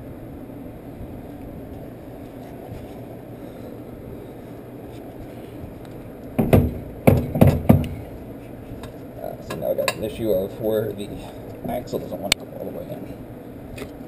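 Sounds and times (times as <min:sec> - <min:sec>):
heavy knocks on axle: 0:06.4 - 0:08.1.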